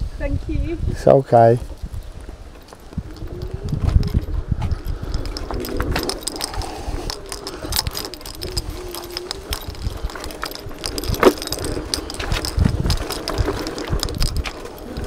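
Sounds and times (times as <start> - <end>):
scooter frame rattling: 1.6 - 15.0.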